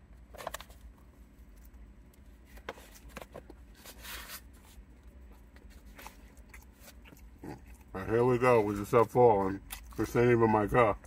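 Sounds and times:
man chewing and smacking: 0:04.9 - 0:08.0.

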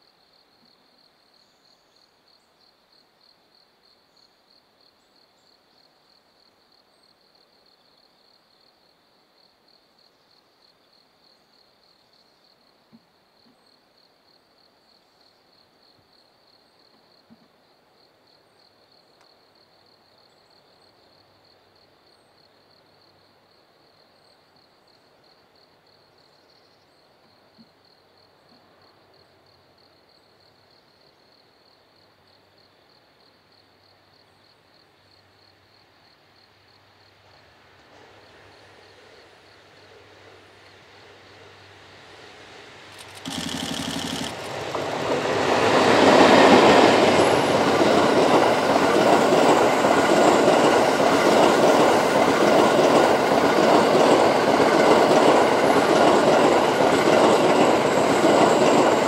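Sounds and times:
faint clicks: 0:42.9 - 0:45.0.

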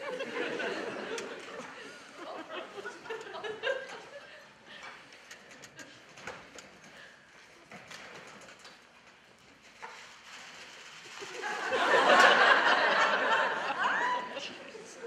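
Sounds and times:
audience laughter: 0:00.0 - 0:04.6, 0:11.2 - 0:15.0.

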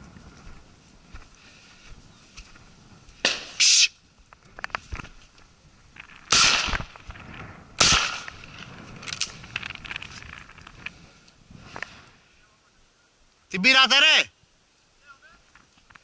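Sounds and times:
shotgun shots with echo: 0:06.3 - 0:06.9, 0:07.8 - 0:08.4.

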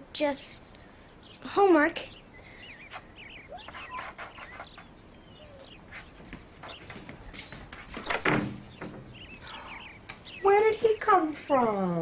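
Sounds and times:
birds chirping: 0:00.0 - 0:12.0
small dog barking: 0:03.4 - 0:04.6.

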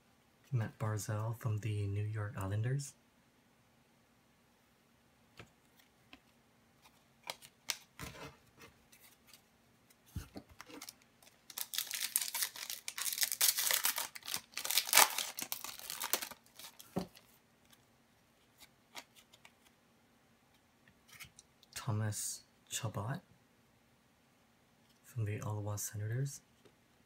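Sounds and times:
foil wrapper tearing and crinkling: 0:10.6 - 0:16.9.

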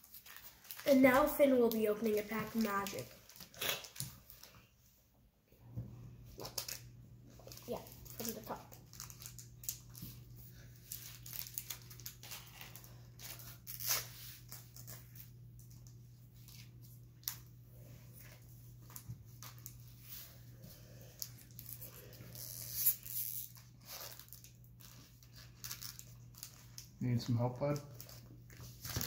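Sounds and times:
foil wrapper ripping: 0:00.0 - 0:04.6, 0:06.4 - 0:10.0, 0:10.8 - 0:15.3, 0:21.2 - 0:29.0
foil wrapper crinkling: 0:00.0 - 0:04.7, 0:06.4 - 0:17.5, 0:21.1 - 0:29.0
faint steady hum: 0:00.0 - 0:29.0.

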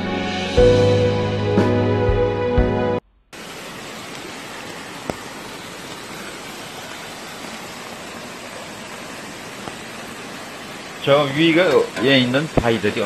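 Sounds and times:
waterfall rushing: 0:03.4 - 0:13.0.

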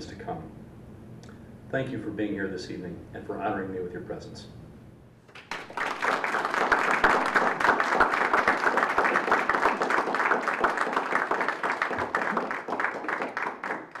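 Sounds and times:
audience applauding: 0:05.3 - 0:14.0.

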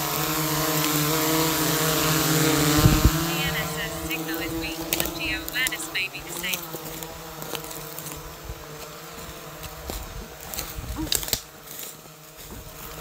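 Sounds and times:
steady buzzing hum: 0:00.0 - 0:13.0
short crackles: 0:09.6 - 0:13.0.

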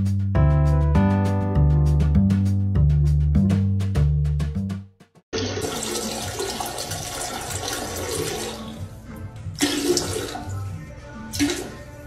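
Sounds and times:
toilet flushing: 0:05.4 - 0:09.0, 0:09.6 - 0:10.7, 0:11.3 - 0:11.9.

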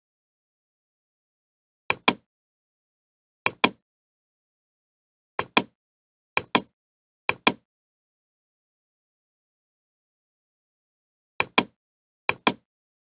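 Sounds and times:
computer mouse clicking: 0:01.9 - 0:02.3, 0:03.5 - 0:03.8, 0:05.4 - 0:05.8, 0:06.4 - 0:06.7, 0:07.3 - 0:07.6, 0:11.4 - 0:12.7.

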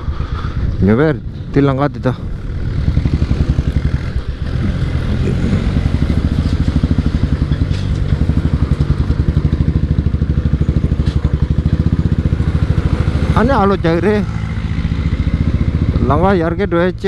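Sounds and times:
motorcycle engine thumping: 0:05.6 - 0:16.1.

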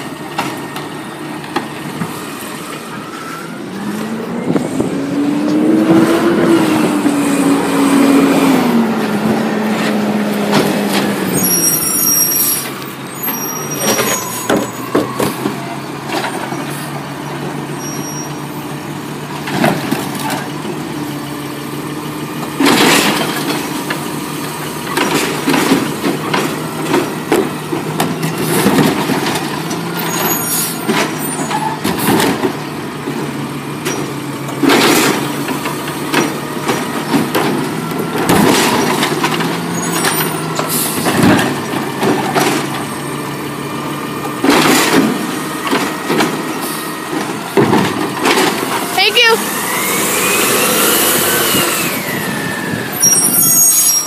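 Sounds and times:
garbage truck engine running: 0:00.0 - 0:54.0
carts knocking and clattering: 0:22.4 - 0:43.3, 0:44.2 - 0:49.8
hydraulic arm moving: 0:49.4 - 0:54.0.

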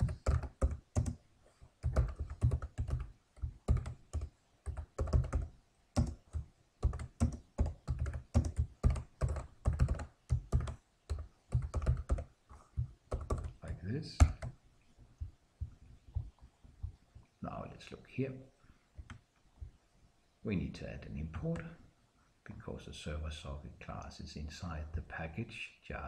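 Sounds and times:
typing on computer keyboard: 0:00.0 - 0:01.2, 0:01.8 - 0:12.3, 0:13.1 - 0:13.6, 0:14.2 - 0:14.6.

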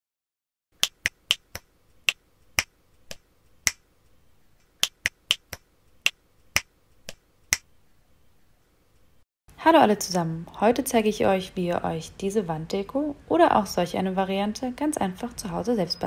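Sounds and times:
rhythmic finger snaps: 0:00.8 - 0:03.8, 0:04.7 - 0:07.7.

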